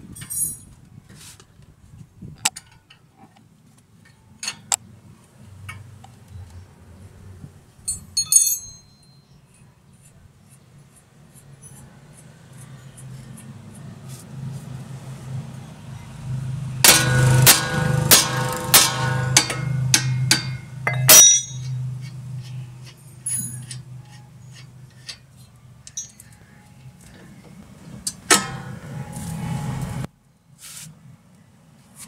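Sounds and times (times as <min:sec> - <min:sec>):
metallic clinks and taps: 0:19.4 - 0:22.2, 0:25.8 - 0:26.4.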